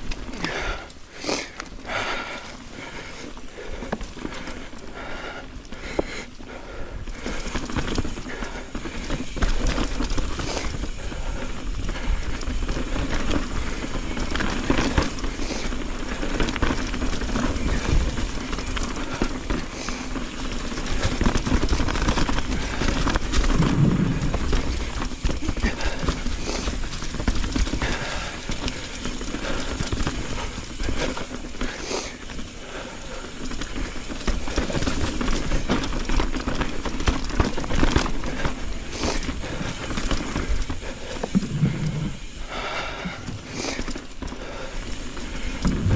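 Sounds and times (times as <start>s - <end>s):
bike knocking and rattling: 0.0s - 45.9s
bike tyres rolling over dirt: 0.0s - 45.9s
wind on microphone: 23.4s - 24.8s, 41.3s - 42.3s, 45.6s - 45.9s.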